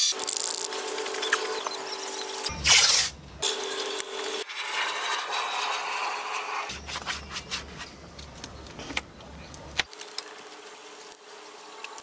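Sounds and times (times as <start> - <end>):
low hum: 2.4 - 3.9.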